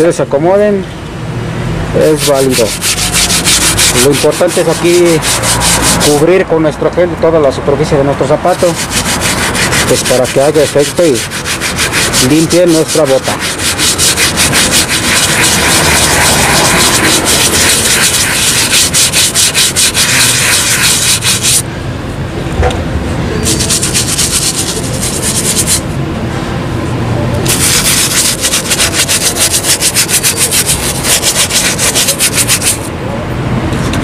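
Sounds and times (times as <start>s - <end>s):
brush scrubbing suede: 2.0s - 6.4s, 8.5s - 21.6s, 23.4s - 25.8s, 27.4s - 32.9s.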